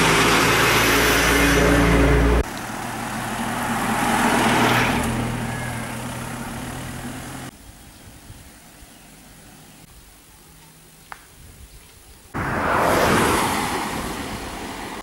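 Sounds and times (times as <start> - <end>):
quiet outdoor background: 2.2 - 15.0
vehicle driving past: 12.4 - 15.0.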